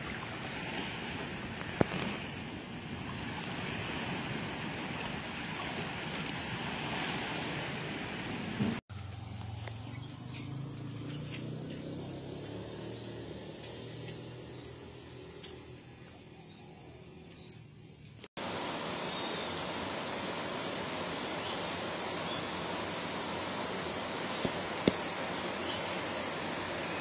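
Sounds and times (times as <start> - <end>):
small waves washing: 0.0 - 8.8
wind: 0.0 - 27.0
high falling bird chirps: 18.9 - 19.8.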